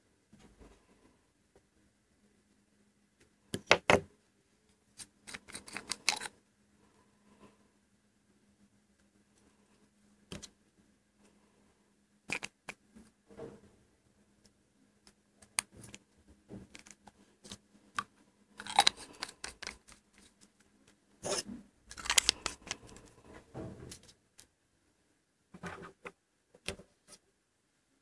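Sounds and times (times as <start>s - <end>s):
fountain pen clicks and scrapes: 5.3s - 6.3s, 18.6s - 20.3s.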